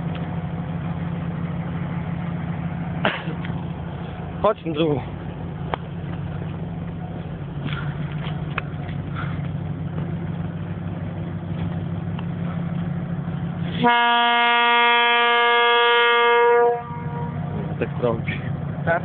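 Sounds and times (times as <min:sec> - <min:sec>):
diesel locomotive engine drone: 0:00.0 - 0:19.0
train horn blast: 0:13.8 - 0:17.6.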